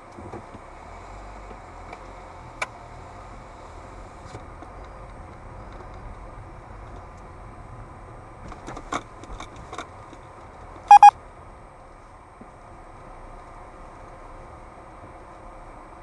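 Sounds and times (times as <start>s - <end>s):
car cabin low hum: 10.9s - 11.1s
dashcam high electronic beeps: 10.9s - 11.1s.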